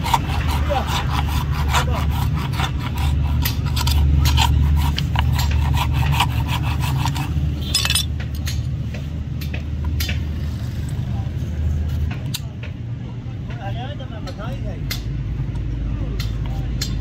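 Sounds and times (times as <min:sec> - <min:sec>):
rasp scraping hoof: 0:00.0 - 0:08.2.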